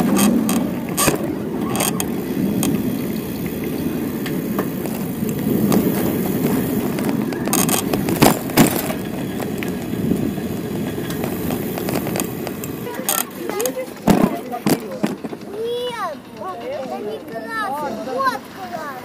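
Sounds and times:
bicycle ride rumble: 0.0 - 19.0
sharp knocks or rattles: 4.6 - 15.6.

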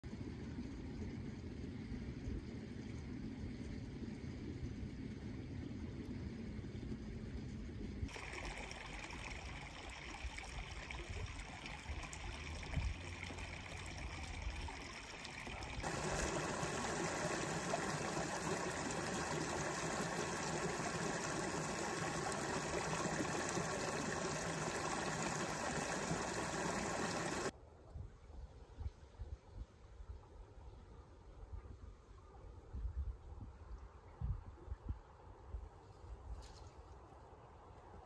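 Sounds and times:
brook babbling over stones: 8.1 - 27.5.

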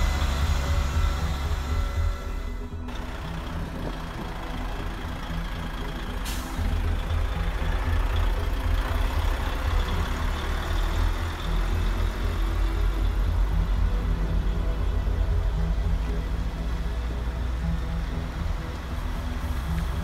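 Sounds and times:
truck diesel engine rumble: 0.0 - 20.0
air-brake hiss: 6.2 - 6.9.

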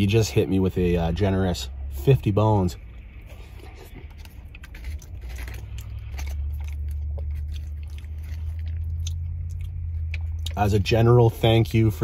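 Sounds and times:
low steady hum: 0.0 - 12.0
close-up chewing: 2.8 - 10.9.

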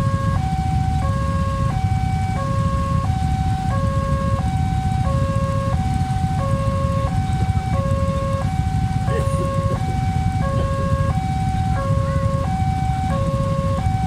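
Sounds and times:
low engine rumble: 0.0 - 14.0
two-tone crossing alarm: 0.0 - 14.0.

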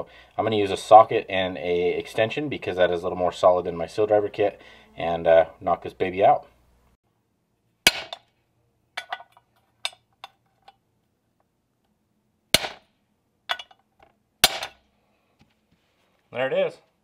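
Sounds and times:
hammer striking metal: 7.9 - 8.3, 12.6 - 12.9, 14.4 - 14.8.

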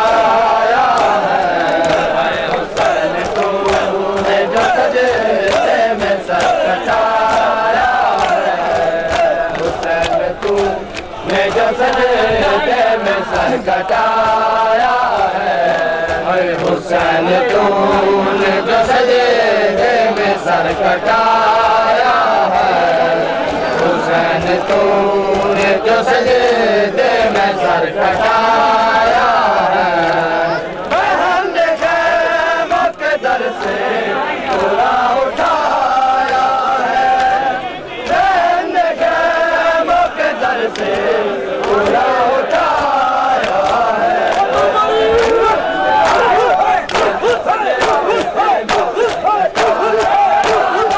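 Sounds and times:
hands slapping chests: 0.0 - 50.9
men chanting in unison: 0.0 - 50.9.

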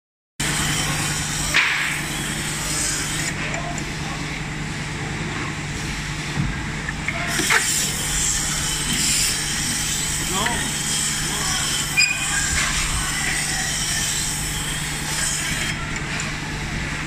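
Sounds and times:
short squeak: 11.8 - 12.9.

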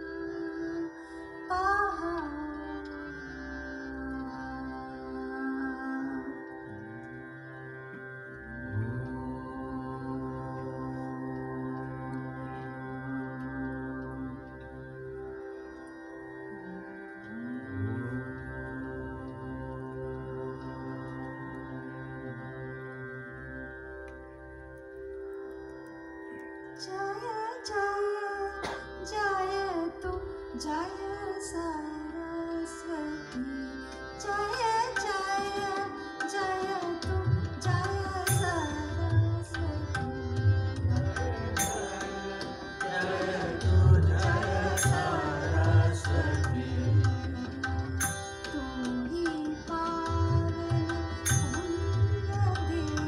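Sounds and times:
sustained drone: 0.0 - 26.4, 38.2 - 53.0.

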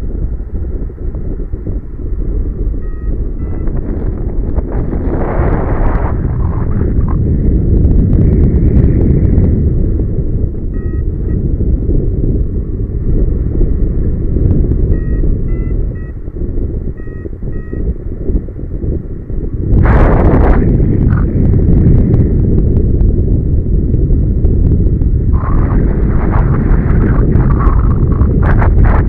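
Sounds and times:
wind buffeting microphone: 0.0 - 29.0
variometer beeping: 2.8 - 4.6, 10.6 - 11.5, 14.9 - 18.0.

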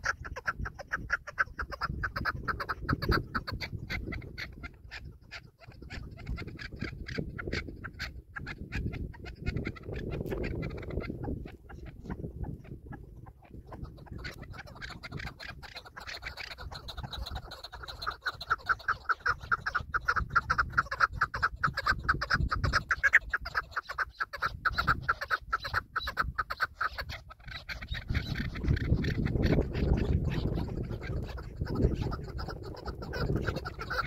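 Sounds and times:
partridge clucking calls: 0.0 - 34.0.

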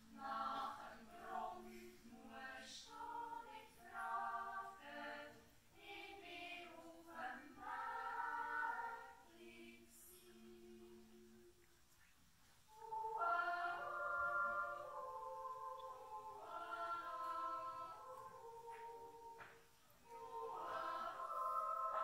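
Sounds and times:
children's choir yodeling: 0.0 - 11.1, 12.7 - 22.0.

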